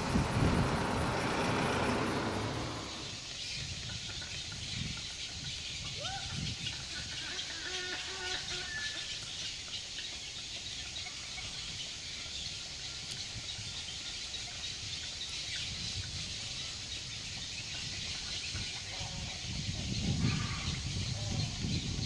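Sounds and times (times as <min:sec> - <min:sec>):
low rumble: 0:00.0 - 0:03.2
insects and birds chorus: 0:00.0 - 0:22.0.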